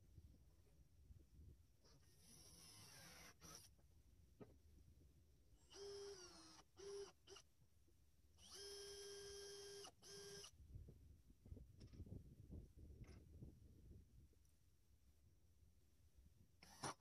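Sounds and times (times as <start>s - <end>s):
cordless drill whining: 2.2s - 3.7s, 5.7s - 7.4s, 8.4s - 10.6s, 16.6s - 17.0s.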